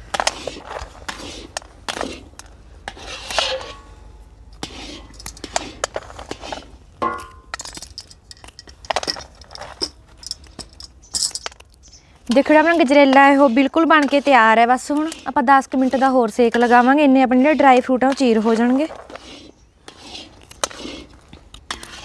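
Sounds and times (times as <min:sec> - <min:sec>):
metal scraper scraping pan: 0:00.0 - 0:04.0, 0:04.6 - 0:07.5, 0:12.3 - 0:22.0.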